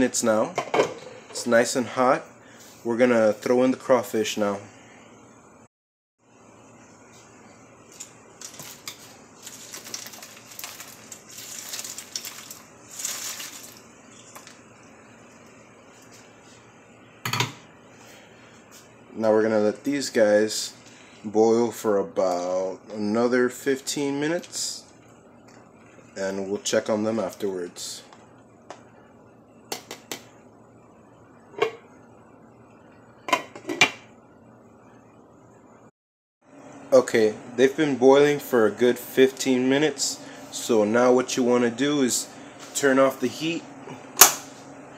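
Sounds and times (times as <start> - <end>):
water boiling: 7.6 - 16.9.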